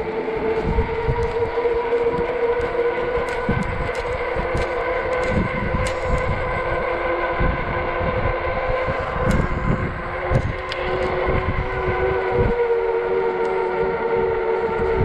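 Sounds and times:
electric motor and tyre whine: 0:00.0 - 0:15.0
wind buffeting microphone: 0:00.0 - 0:15.0.

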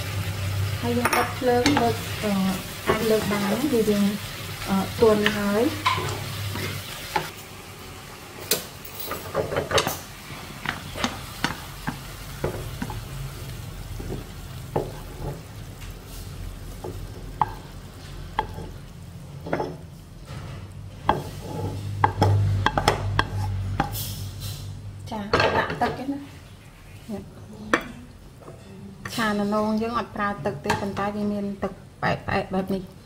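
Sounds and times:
light sizzle: 0:00.0 - 0:33.0
wooden spatula scraping a wok: 0:01.4 - 0:07.3, 0:09.2 - 0:24.7.

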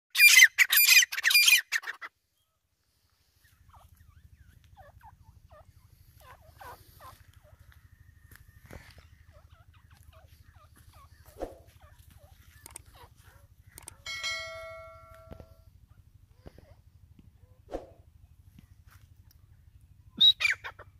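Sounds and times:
francolin calling harshly: 0:00.2 - 0:02.1
soft bird call notes and clicks: 0:09.8 - 0:14.1
ringing chime: 0:14.0 - 0:15.7.

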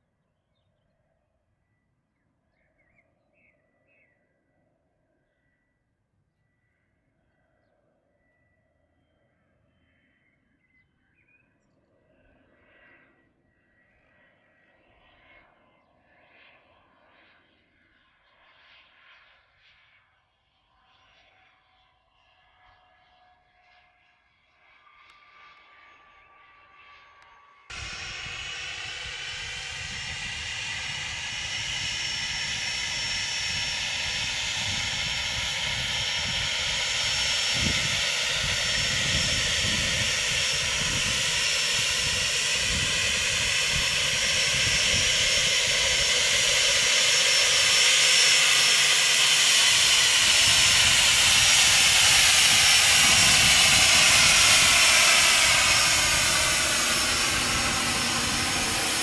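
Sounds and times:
jet engine whine and hiss: 0:24.6 - 0:59.0.

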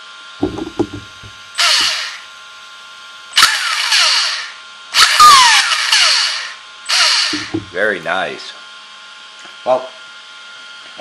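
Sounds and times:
light knocks: 0:00.4 - 0:01.4
electric motor whirring: 0:00.4 - 0:02.3, 0:03.3 - 0:08.2.

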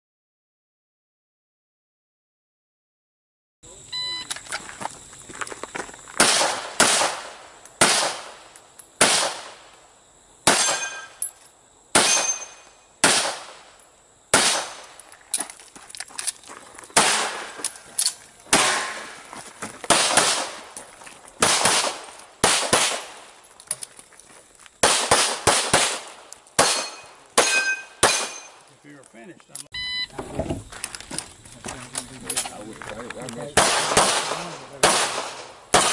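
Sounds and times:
pistol shots: 0:06.2 - 0:09.6, 0:10.4 - 0:11.2, 0:11.9 - 0:13.7, 0:14.3 - 0:14.9, 0:17.0 - 0:17.6, 0:18.5 - 0:19.2, 0:19.9 - 0:20.7, 0:21.4 - 0:23.3, 0:24.8 - 0:28.6, 0:33.6 - 0:35.9.

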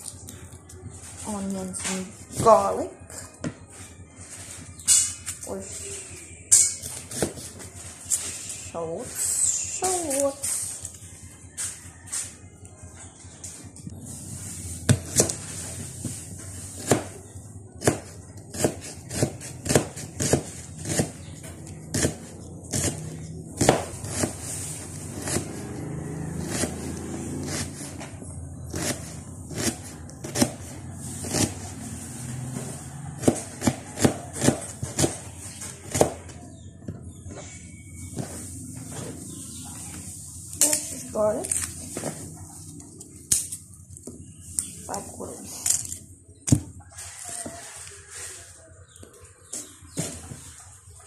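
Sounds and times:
knife chopping on cutting board: 0:23.6 - 0:24.4, 0:33.2 - 0:35.2.

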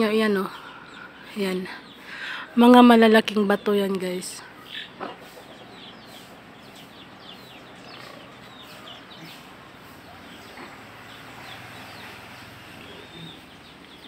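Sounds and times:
birds chirping: 0:00.0 - 0:14.0
chickens clucking: 0:04.5 - 0:14.0.

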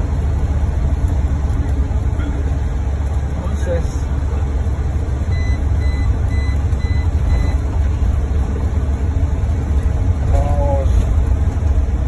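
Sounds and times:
vehicle cabin rumble: 0:00.0 - 0:12.0
short high beeps: 0:05.3 - 0:07.6.

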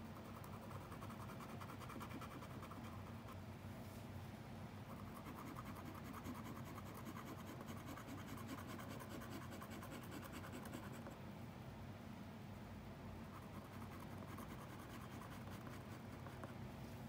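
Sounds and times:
drawing tool scratching on paper: 0:00.2 - 0:03.0, 0:05.0 - 0:11.1, 0:13.4 - 0:16.5.

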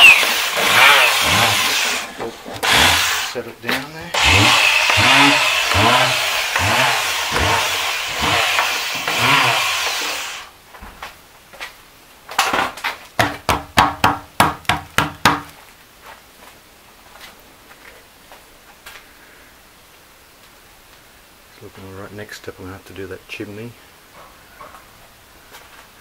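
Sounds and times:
electric orbital sander running: 0:00.0 - 0:03.4, 0:04.1 - 0:10.5
sharp knocks: 0:12.4 - 0:15.5.

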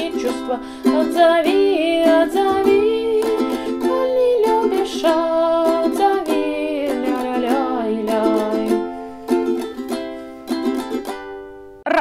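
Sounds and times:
ukulele strumming: 0:00.0 - 0:11.8.

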